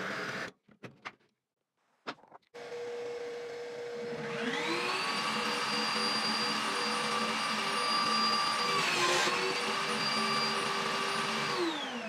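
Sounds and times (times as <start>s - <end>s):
table saw motor whine: 2.6s - 12.0s.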